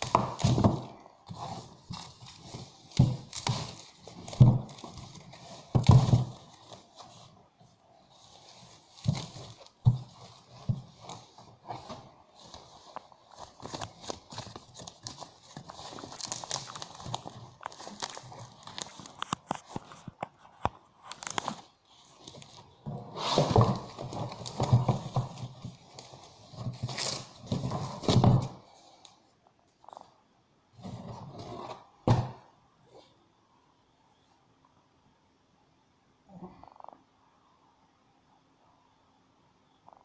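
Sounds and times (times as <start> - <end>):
cardboard scraping and knocking: 0.0 - 7.2, 8.3 - 14.6, 22.4 - 28.6
plastic bag crinkling: 8.1 - 28.6.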